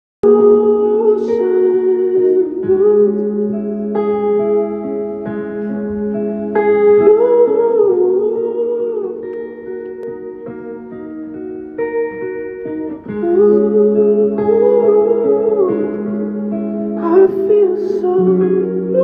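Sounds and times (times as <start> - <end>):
man singing: 0.2 - 3.7, 6.7 - 9.6, 12.9 - 16.4, 17.0 - 19.0.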